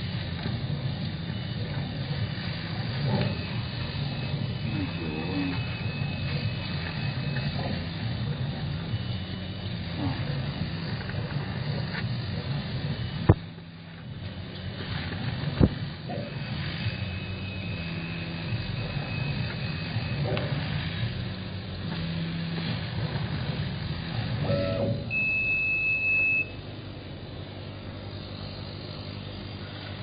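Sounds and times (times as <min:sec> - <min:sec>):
faint high whine: 0:00.0 - 0:30.0
machine humming: 0:00.0 - 0:30.0
loud steady beep: 0:03.0 - 0:08.0, 0:16.2 - 0:21.0, 0:24.4 - 0:26.6.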